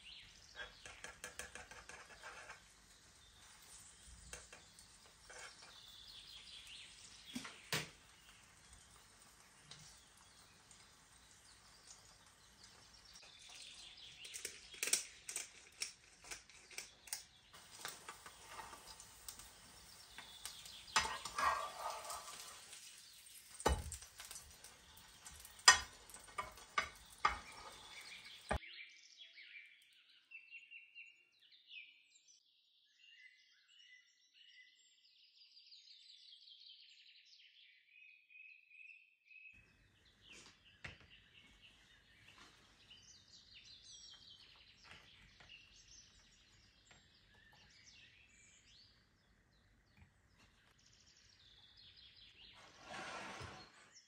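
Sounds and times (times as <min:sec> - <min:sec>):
bread sizzling in frying pan: 0:00.0 - 0:28.6
birds chirping: 0:00.0 - 0:29.9, 0:39.5 - 0:52.7
spatula tapping and scraping pan: 0:00.1 - 0:15.6, 0:17.6 - 0:28.6.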